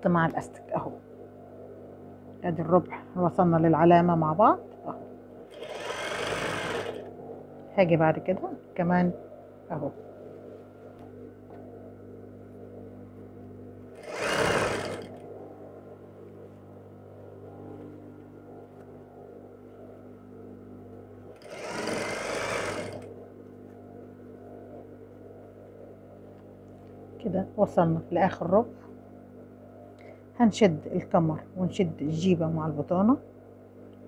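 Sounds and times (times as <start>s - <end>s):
steady low hum: 0.0s - 34.0s
sewing machine stitching: 5.5s - 7.1s, 14.0s - 15.2s, 21.4s - 23.1s.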